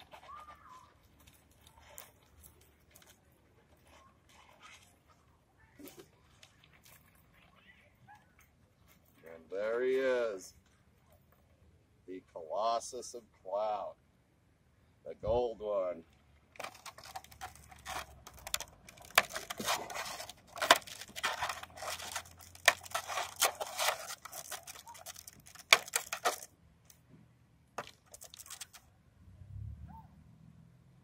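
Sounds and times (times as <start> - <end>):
stiff plastic packaging crackling: 16.6 - 26.5, 27.8 - 28.8.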